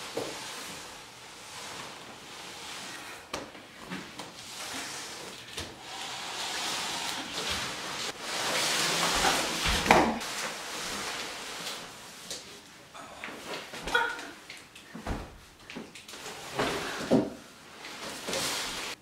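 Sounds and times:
cardboard box scraping across floor: 3.9 - 11.6, 17.9 - 19.0.

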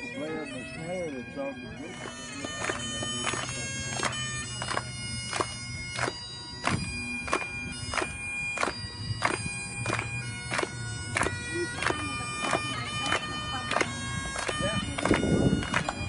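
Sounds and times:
bagpipes playing a tune: 0.0 - 16.0
people clapping along: 2.0 - 16.0.

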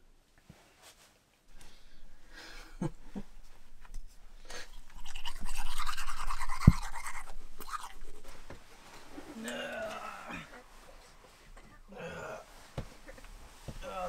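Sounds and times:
toothbrush scrubbing teeth: 3.9 - 8.5.

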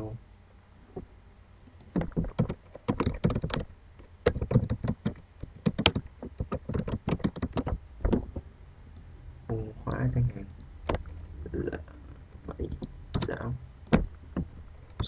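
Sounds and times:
typing on computer keyboard: 1.8 - 8.2.

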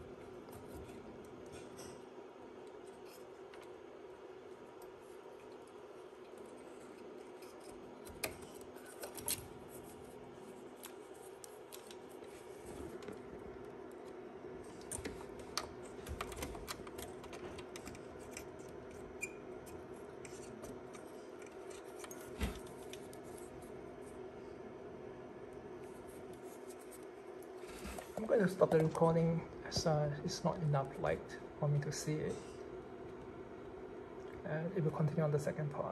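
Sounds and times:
steady low hum: 0.0 - 35.9
hands handling wires clicking: 4.5 - 9.9, 10.7 - 23.5.

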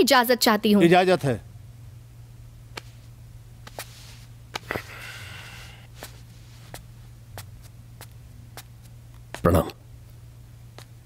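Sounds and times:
steady low hum: 0.0 - 11.0
soft rustle: 2.7 - 4.8, 5.5 - 9.4.

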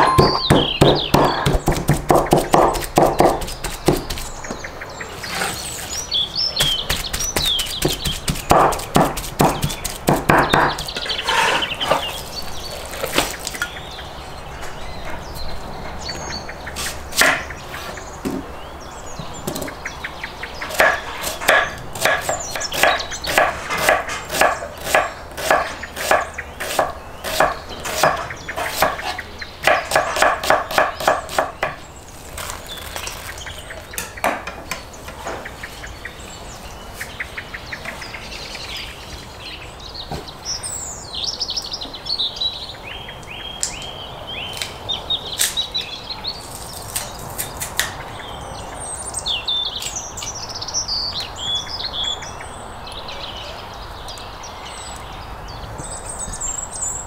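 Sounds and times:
knife chopping on wooden board: 0.0 - 4.3, 6.6 - 12.0, 20.7 - 31.8
birds chirping: 0.0 - 57.0.

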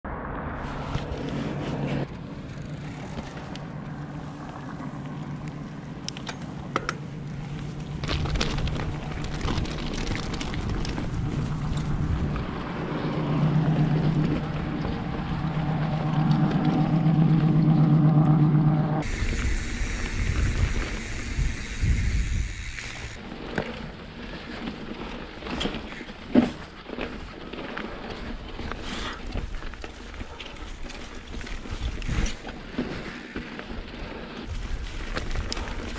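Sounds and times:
humming drone: 0.1 - 23.2
rattles and clicks: 5.4 - 24.7
wind rushing on microphone: 8.2 - 17.8, 18.4 - 23.2.

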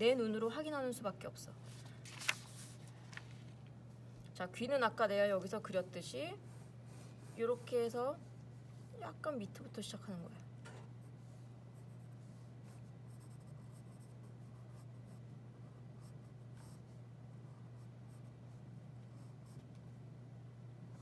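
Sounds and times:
steady low hum: 0.0 - 21.0
pencil scratching on paper: 11.1 - 19.6.

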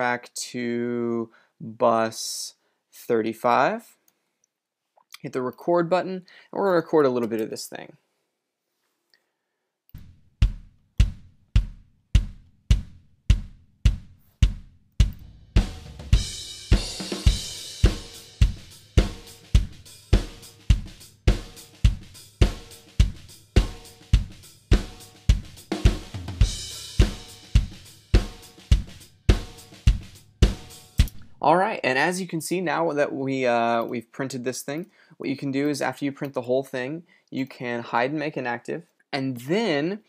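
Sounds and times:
kick drum hits: 10.0 - 16.9
snare drum: 10.4 - 31.1
cymbal wash: 26.4 - 29.8.

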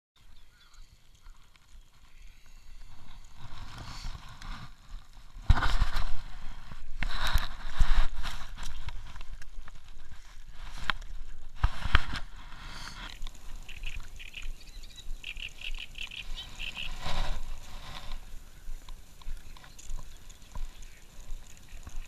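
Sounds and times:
jacket rubbing against camera: 2.6 - 14.3, 15.9 - 18.4.

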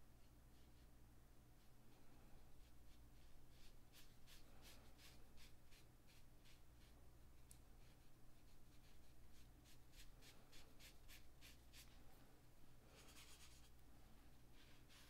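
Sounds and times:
brush dabbing on paper: 0.2 - 1.0, 2.4 - 12.0, 12.9 - 13.8, 14.4 - 15.0.

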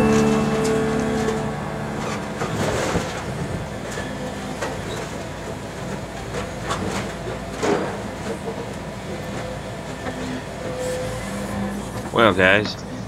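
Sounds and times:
excavator diesel engine: 0.0 - 6.4.

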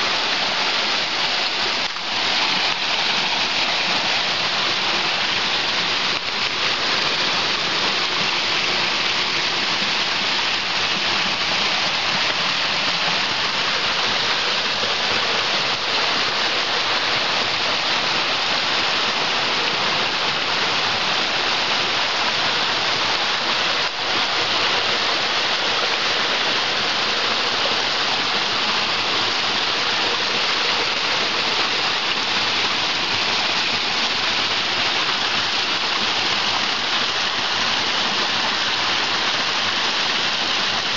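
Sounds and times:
stream rushing over rocks: 0.0 - 40.9.

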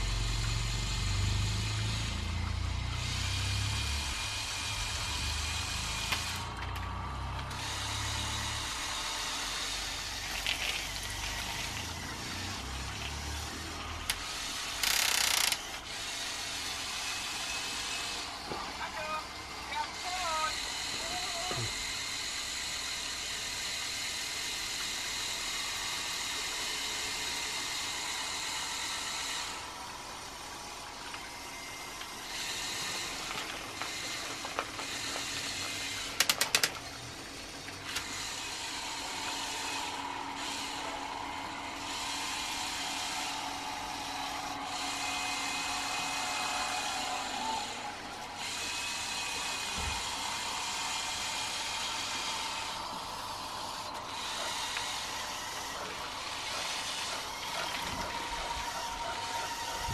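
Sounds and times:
toy electric motors whirring: 0.0 - 59.9
sharp clicks: 14.8 - 15.8, 36.0 - 36.9.

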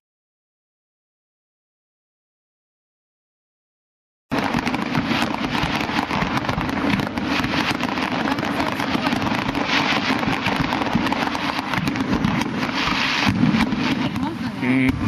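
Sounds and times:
fireworks bursting and crackling: 4.3 - 15.0.

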